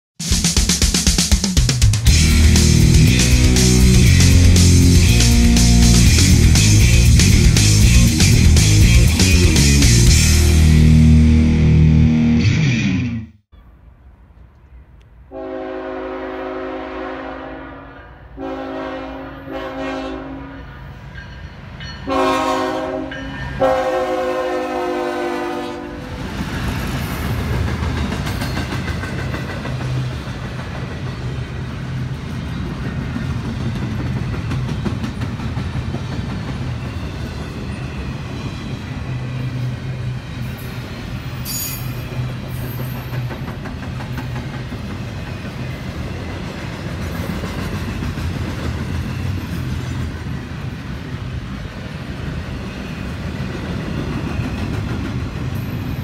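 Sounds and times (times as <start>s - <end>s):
train cars rumbling and clacking: 1.8s - 10.7s, 20.9s - 56.0s
locomotive air horn blasts: 15.3s - 20.7s, 22.1s - 26.1s.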